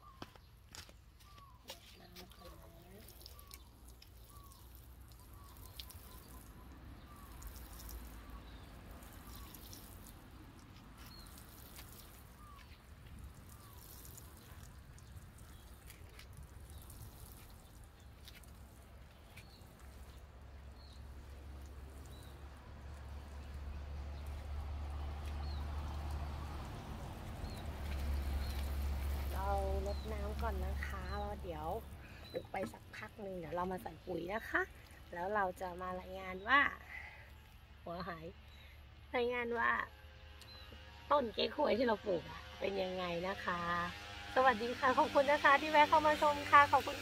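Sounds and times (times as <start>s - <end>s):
watering can spraying onto soil: 1.4s - 36.5s.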